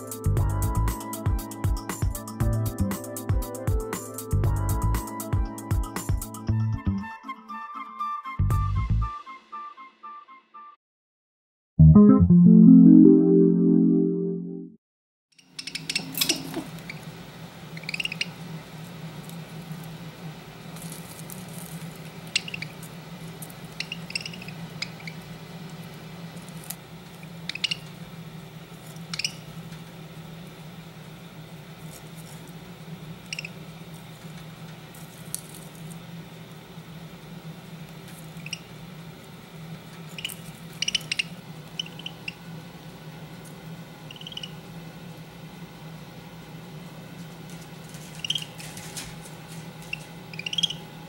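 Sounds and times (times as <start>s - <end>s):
budgerigar high chirps: 17.8s - 18.4s, 22.3s - 22.8s, 23.8s - 25.2s, 27.5s - 27.9s, 29.1s - 29.5s, 33.3s - 33.6s, 38.4s - 38.7s, 40.1s - 42.4s, 44.0s - 44.6s, 48.2s - 48.6s, 49.9s - 50.9s.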